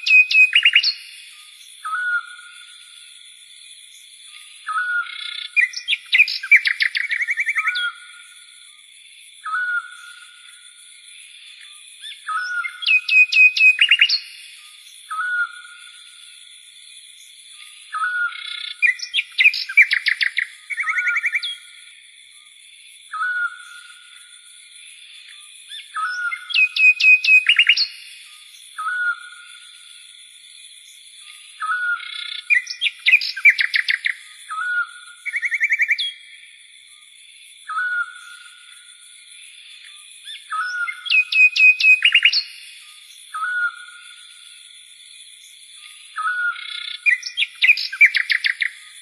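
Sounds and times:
bird hooked whistle: 0:00.0 - 0:01.0, 0:12.3 - 0:14.2, 0:26.0 - 0:27.9, 0:40.6 - 0:42.5
bird-like chirping calls: 0:00.0 - 0:01.2, 0:04.7 - 0:08.0, 0:12.0 - 0:14.4, 0:17.9 - 0:21.6, 0:25.7 - 0:28.1, 0:31.6 - 0:36.2, 0:40.3 - 0:42.7, 0:46.2 - 0:48.8
high insect drone: 0:00.0 - 0:49.0.

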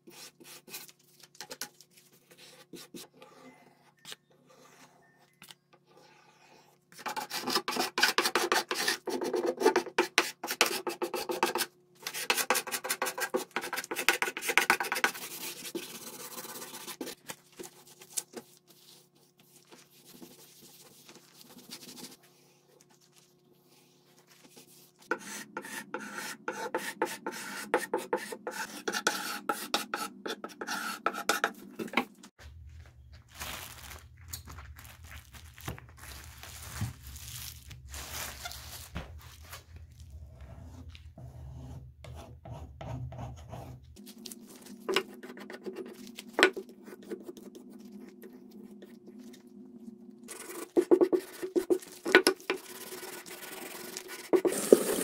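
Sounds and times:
putty knife scraping wood: 0:25.1 - 0:32.0.

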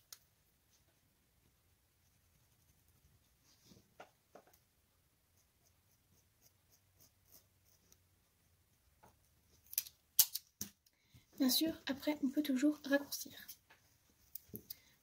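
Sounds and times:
pen scratching on felt: 0:02.0 - 0:03.4, 0:05.3 - 0:09.6.

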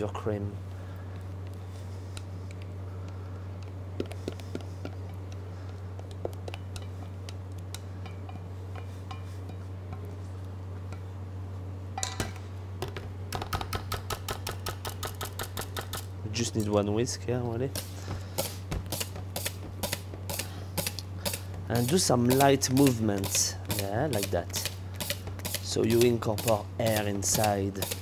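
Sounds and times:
steady low hum: 0:00.0 - 0:28.0
whisk clicking against steel bowl: 0:21.3 - 0:28.0.

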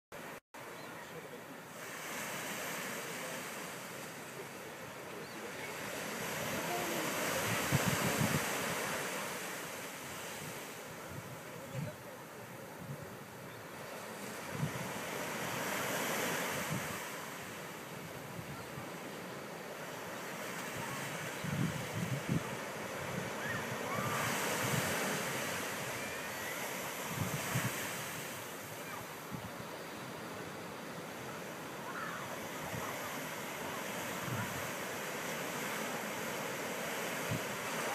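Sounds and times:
ocean surf on sandy beach: 0:00.2 - 0:37.9
wind buffeting microphone: 0:06.4 - 0:09.0, 0:20.7 - 0:26.0, 0:26.9 - 0:28.2.

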